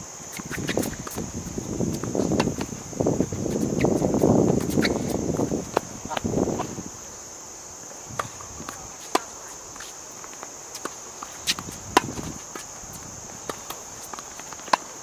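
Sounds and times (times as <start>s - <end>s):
high insect chorus: 0.0s - 15.0s
tennis ball bouncing on court: 8.2s - 9.9s, 10.7s - 12.6s
tennis ball hitting racquet: 8.2s - 9.9s, 10.7s - 12.7s, 13.4s - 14.9s.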